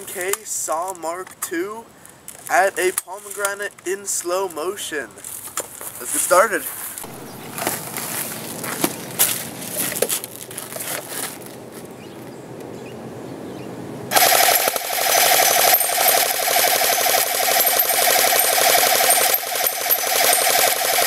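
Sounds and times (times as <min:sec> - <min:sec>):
airsoft gun firing full auto: 0:07.1 - 0:07.7, 0:14.1 - 0:21.0.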